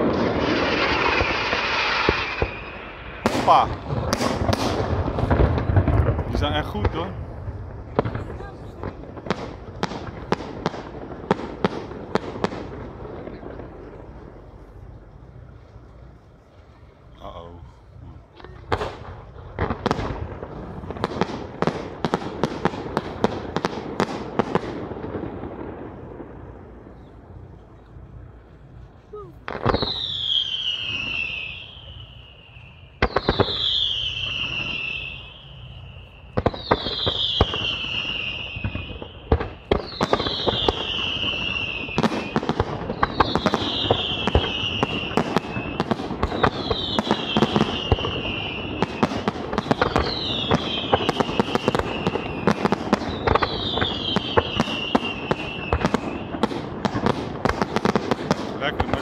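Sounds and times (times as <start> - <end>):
falling firework whistle: 0.0 - 5.8, 29.0 - 58.4
firework bangs: 0.0 - 59.0
firework crackling: 0.0 - 59.0.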